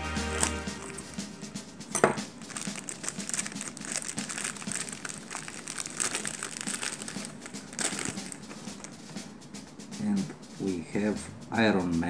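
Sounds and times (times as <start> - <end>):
plastic bag crinkling: 0.2 - 1.2, 1.9 - 9.0.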